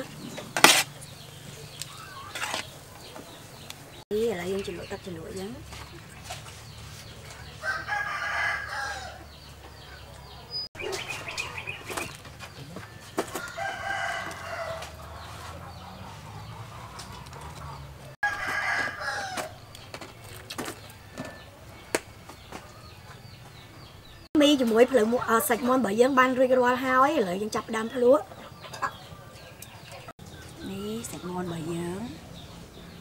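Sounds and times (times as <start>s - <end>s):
rooster crowing: 7.6s - 10.6s, 13.0s - 16.9s, 17.8s - 19.6s.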